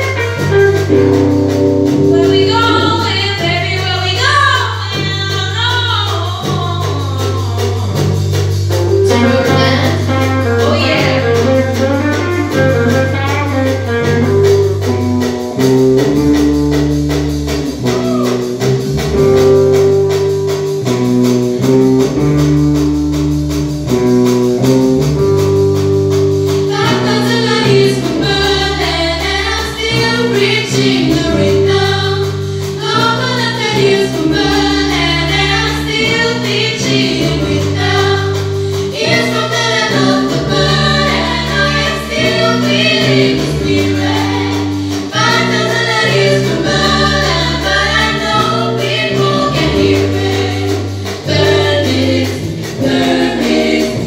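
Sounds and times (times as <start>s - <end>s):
live band playing: 0.0s - 54.0s
women singing together: 26.7s - 54.0s.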